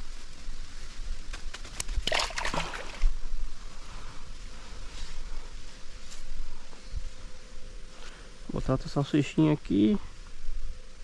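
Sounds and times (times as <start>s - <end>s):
water sloshing at bank: 2.0s - 3.1s
water splash: 2.0s - 3.1s.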